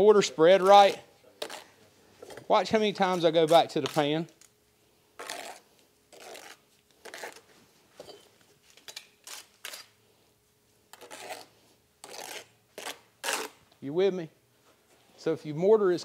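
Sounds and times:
trowel scraping mortar: 0.8s - 1.7s, 5.2s - 7.5s, 10.9s - 13.6s.

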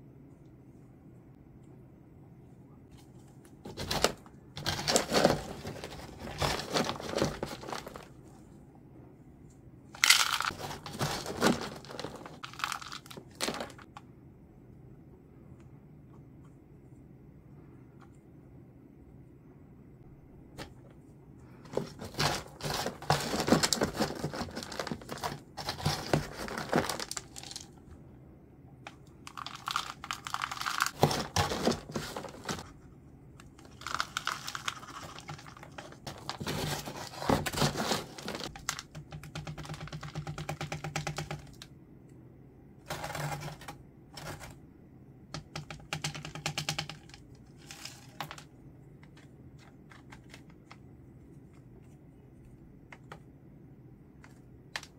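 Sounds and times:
crinkling and rustling of plants: 2.9s - 8.3s, 10.0s - 13.9s, 21.6s - 27.8s, 29.3s - 32.8s, 33.5s - 38.9s.

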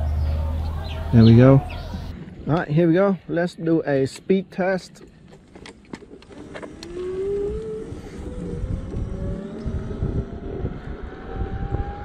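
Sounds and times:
wind noise on microphone: 0.0s - 3.2s, 5.4s - 12.0s
road rumble: 0.0s - 12.0s
electric scooter motor whining: 5.5s - 12.0s.

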